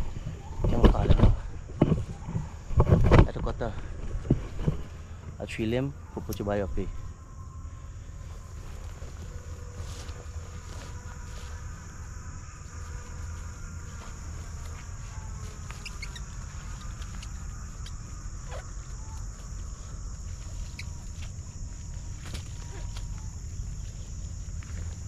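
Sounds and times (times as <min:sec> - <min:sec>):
high-pitched insect drone: 0:00.0 - 0:25.0
bird chirps: 0:15.1 - 0:19.2, 0:20.6 - 0:21.2.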